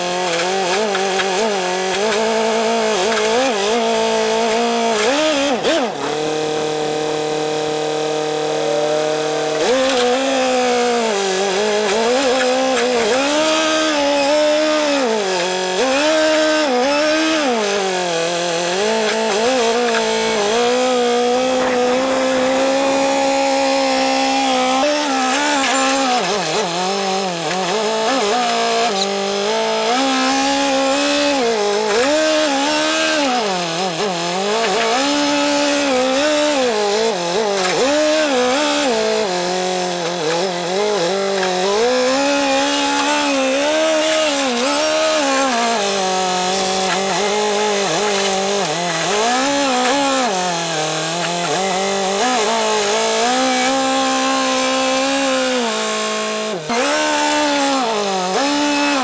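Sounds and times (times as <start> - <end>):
engine revving: 0.0 - 59.0.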